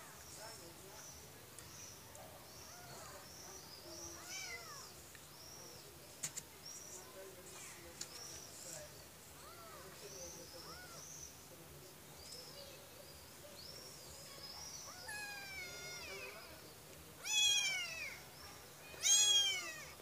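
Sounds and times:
kitten meowing: 15.0s - 16.3s, 17.2s - 18.2s, 18.9s - 20.0s.

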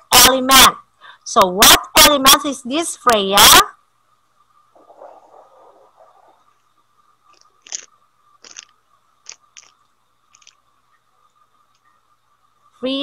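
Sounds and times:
steady low hum: 0.0s - 13.0s
faint clicks and crackles: 6.0s - 11.0s, 11.6s - 12.0s.

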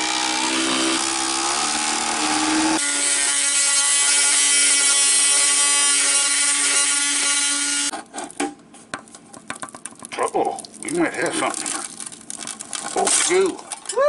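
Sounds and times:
multi-tool buzzing: 0.0s - 7.9s.

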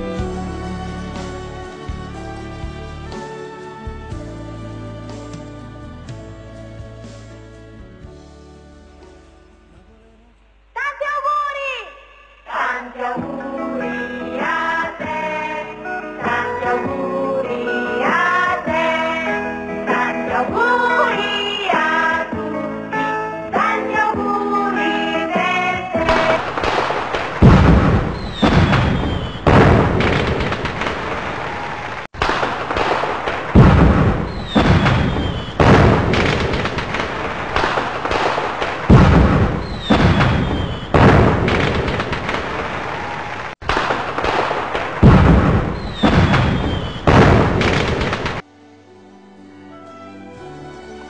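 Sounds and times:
fireworks bangs and crackle: 26.0s - 48.4s
falling firework whistle: 26.1s - 31.9s, 33.3s - 43.4s, 45.2s - 48.2s.

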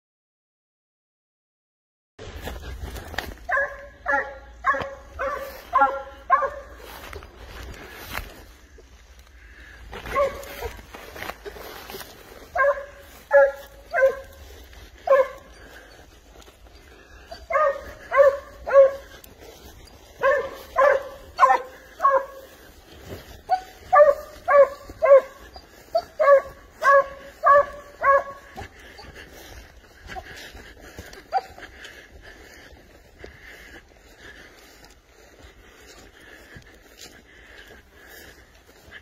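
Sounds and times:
hound barking: 3.4s - 7.2s, 9.9s - 32.0s.

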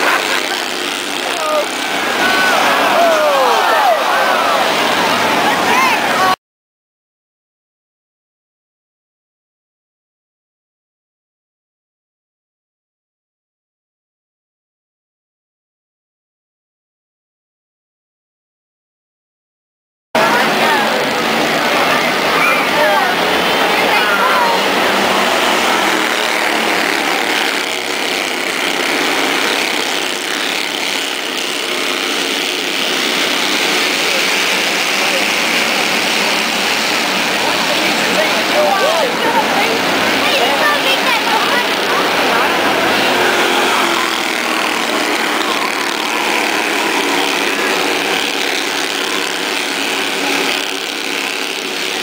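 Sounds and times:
race car engines passing: 0.0s - 6.4s, 20.2s - 52.0s.

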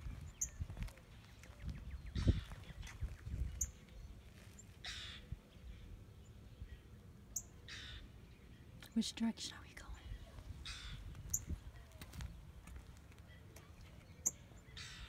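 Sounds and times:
wind buffeting microphone: 0.0s - 4.2s, 10.0s - 13.3s
high bird chirps: 1.4s - 4.1s.

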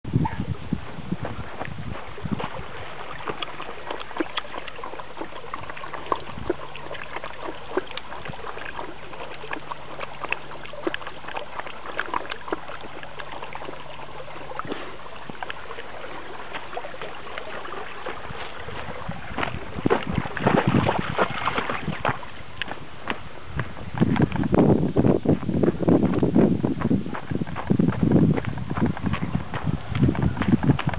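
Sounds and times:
dog lapping water: 0.2s - 24.5s.

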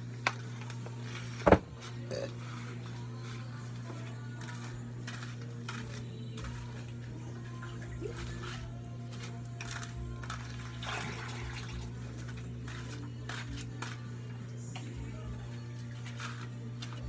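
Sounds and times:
plastic buckets knocking: 1.4s - 1.8s.

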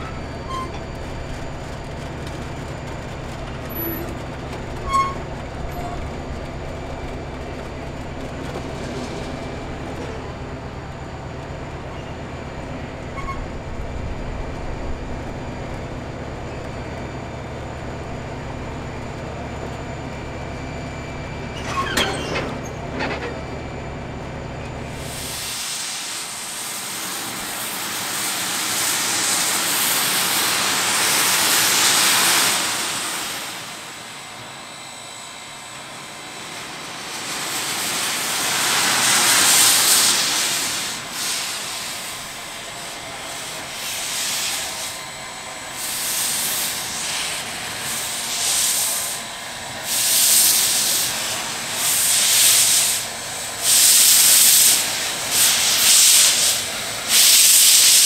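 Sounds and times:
steam locomotive chuffing: 0.0s - 58.0s
steam hissing: 24.9s - 58.0s.

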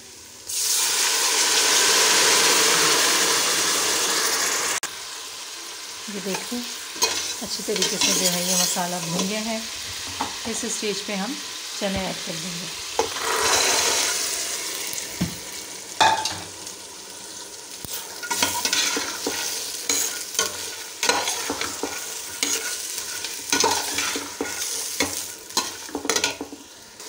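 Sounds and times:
masala sizzling in pot: 0.0s - 27.0s
metal spoon scraping pot: 13.0s - 14.2s.

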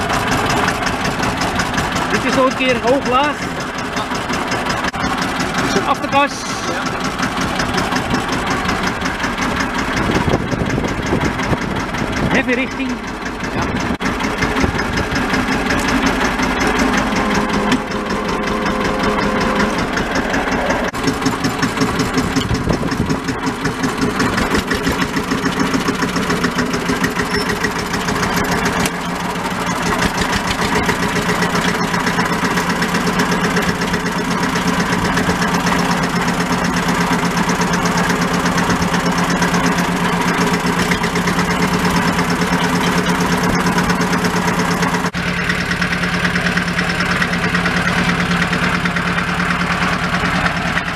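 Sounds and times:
tractor diesel engine running: 0.0s - 50.9s.

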